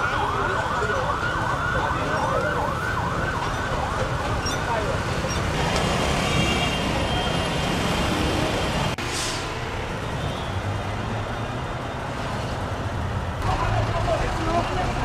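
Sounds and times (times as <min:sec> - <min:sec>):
crowd talking: 0:00.0 - 0:05.3, 0:13.4 - 0:15.0
traffic engines: 0:00.0 - 0:15.0.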